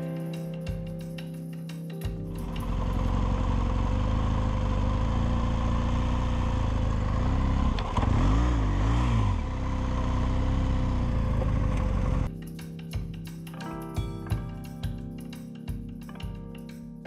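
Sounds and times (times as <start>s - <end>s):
motorcycle engine revving: 2.4s - 12.3s.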